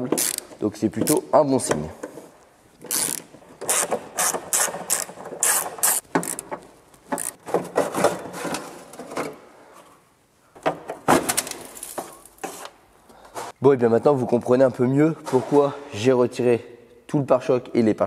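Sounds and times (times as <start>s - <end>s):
ratchet wrench clicking: 2.9s - 6.4s.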